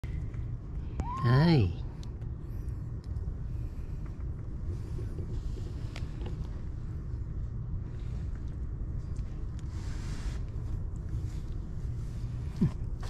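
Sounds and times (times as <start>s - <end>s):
low rumble: 0.0s - 13.0s
kittens scratching on fleece: 7.9s - 13.0s.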